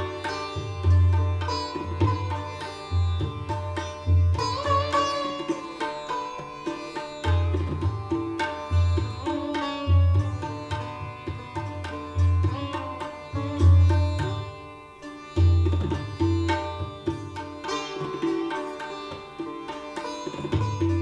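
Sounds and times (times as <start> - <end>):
sitar melody: 0.0 - 21.0
tabla strokes: 0.0 - 21.0.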